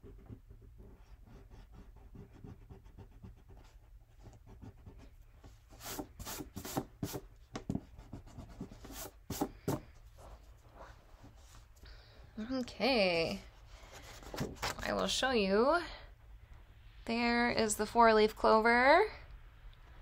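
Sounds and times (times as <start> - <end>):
eraser rubbing on paper: 5.7 - 7.2, 8.0 - 10.4.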